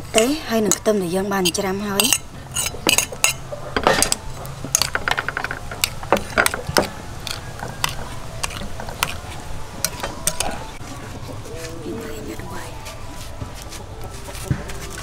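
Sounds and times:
metal spoon scraping ceramic bowl: 1.4 - 3.4.

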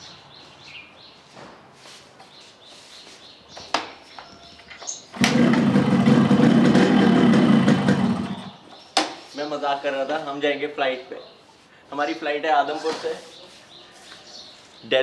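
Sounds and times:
birds chirping: 2.2 - 15.0
engine running loudly: 5.2 - 8.6.

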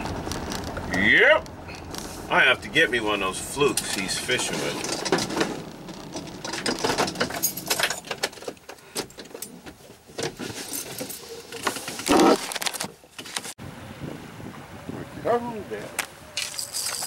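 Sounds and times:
rattling inside driving vehicle: 0.0 - 12.0.

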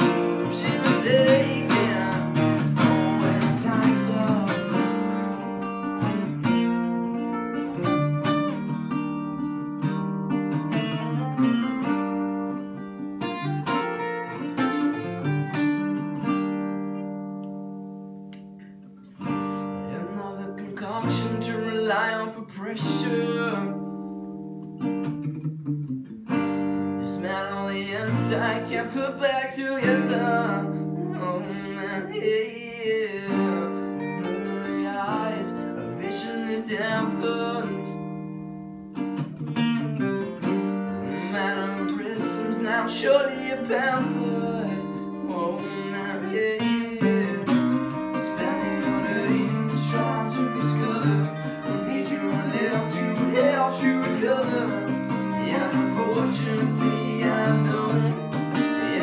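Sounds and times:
man singing: 0.0 - 5.4, 19.8 - 23.9, 27.0 - 38.2, 40.4 - 59.0
acoustic guitars strummed and picked: 0.0 - 59.0.

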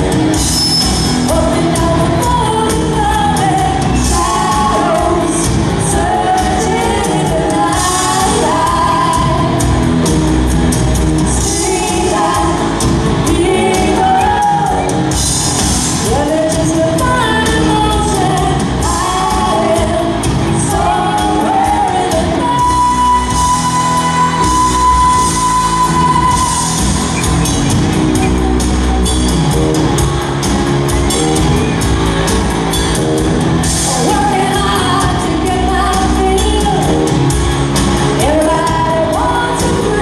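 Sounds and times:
pop-rock band playing: 0.0 - 40.0
woman singing: 0.8 - 10.5, 11.2 - 27.0, 33.7 - 40.0.

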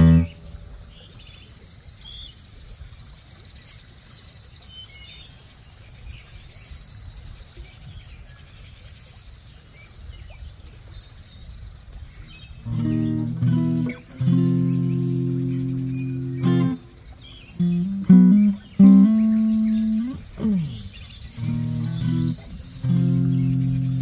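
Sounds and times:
faint bird chirps: 0.0 - 24.0
low steady rumble: 12.6 - 24.0.

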